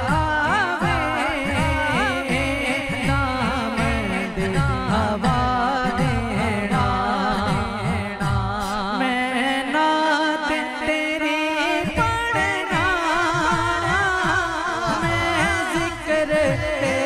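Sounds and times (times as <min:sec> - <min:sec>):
steady low beat: 0:00.0 - 0:08.6
man singing into a microphone: 0:00.0 - 0:17.0.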